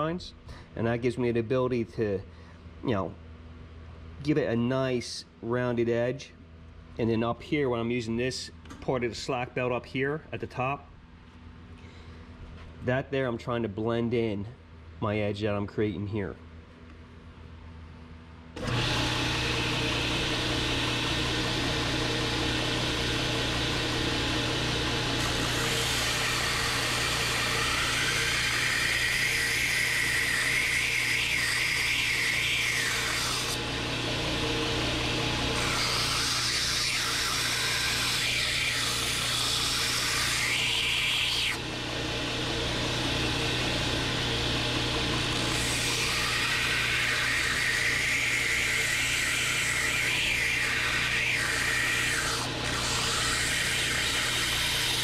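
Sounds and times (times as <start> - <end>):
belt grinder motor humming: 18.6 - 55.0
blade grinding hiss: 25.2 - 33.8, 34.4 - 41.6, 45.3 - 55.0.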